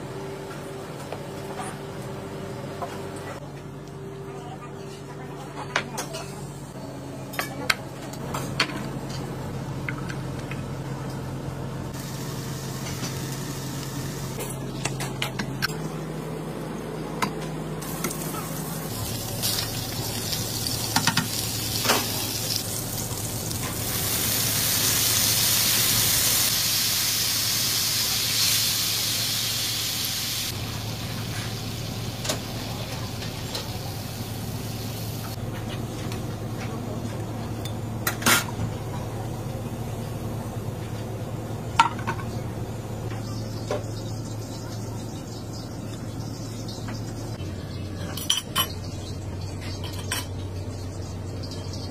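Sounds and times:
fish sizzling in oil: 0:17.8 - 0:35.4
cream hissing in hot pan: 0:19.0 - 0:31.6.

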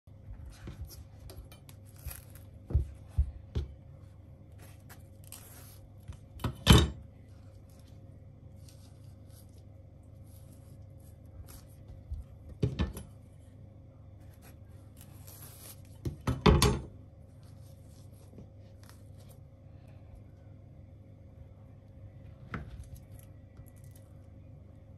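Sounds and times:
banana skins tearing and rustling: 0:00.6 - 0:03.2, 0:04.5 - 0:06.4, 0:07.2 - 0:12.2, 0:14.2 - 0:16.2, 0:17.4 - 0:19.4, 0:22.7 - 0:24.3.

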